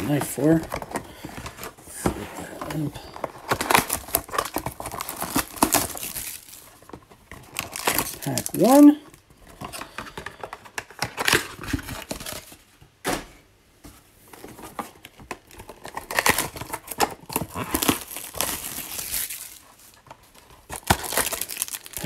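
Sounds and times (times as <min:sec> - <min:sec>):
wrapper tearing and crinkling: 0:02.7 - 0:09.0, 0:10.8 - 0:12.6, 0:15.0 - 0:22.0.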